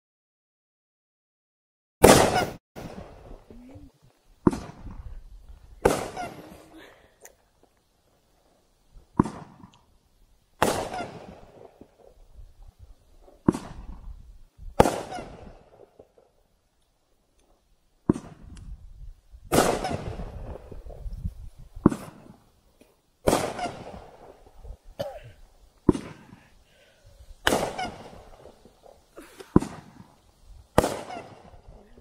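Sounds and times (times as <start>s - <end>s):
firework bangs: 2.0s - 3.7s, 4.4s - 6.9s, 8.4s - 9.9s, 10.6s - 16.4s, 18.0s - 18.6s, 19.5s - 22.6s, 23.2s - 25.2s, 25.8s - 31.8s
rumble after firework shots: 2.0s - 6.9s, 9.0s - 9.9s, 10.6s - 16.3s, 18.0s - 22.5s, 23.2s - 25.2s, 27.2s - 32.0s.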